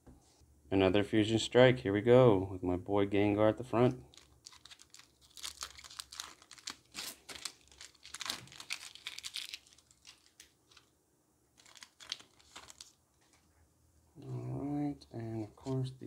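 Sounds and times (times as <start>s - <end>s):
foil wrapper crinkling: 4.1s - 10.9s, 11.6s - 13.3s.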